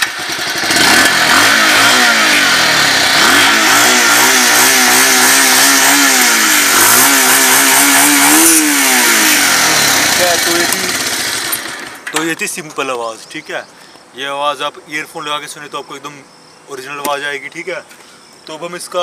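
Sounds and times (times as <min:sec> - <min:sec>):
motorcycle engine revving: 0:00.0 - 0:12.1.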